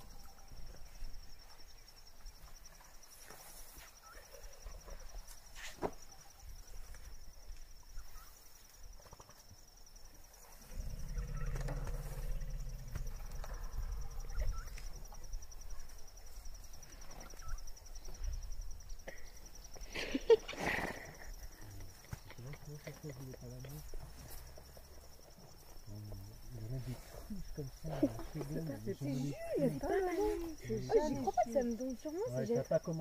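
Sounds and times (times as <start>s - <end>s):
high cricket trill: 0.0s - 33.0s
elephant low rumble: 10.5s - 15.6s.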